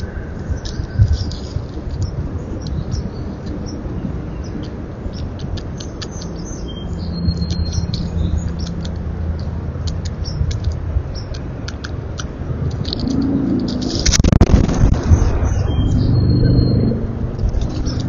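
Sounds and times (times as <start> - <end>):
steady low hum: 0.0 - 18.0
small sharp clicks: 4.5 - 6.6, 7.3 - 14.4.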